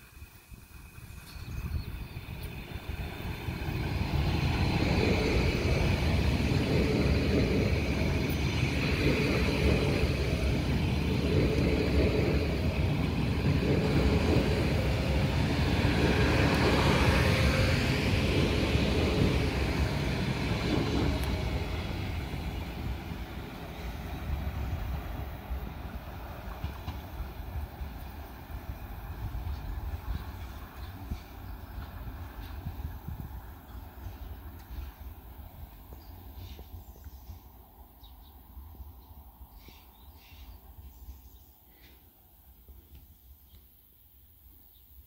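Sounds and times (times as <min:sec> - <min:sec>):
train passing at speed: 0:00.0 - 0:43.3
wheels clattering on rails: 0:24.4 - 0:35.2.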